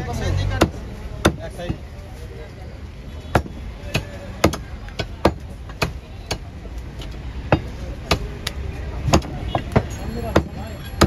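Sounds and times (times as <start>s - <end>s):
cleaver chopping meat on wood: 0.6s - 1.8s, 3.3s - 6.5s, 7.5s - 10.5s.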